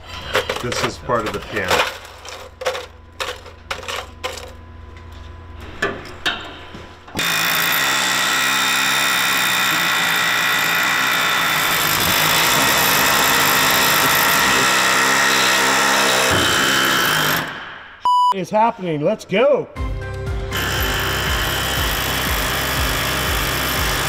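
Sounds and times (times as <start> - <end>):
power tool running: 7.2 - 17.8, 20.5 - 24.0.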